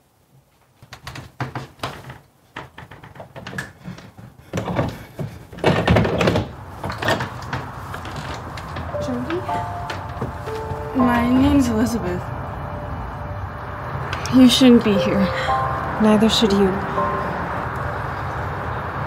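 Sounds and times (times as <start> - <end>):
irregular knocks and clicks: 0.8 - 9.0.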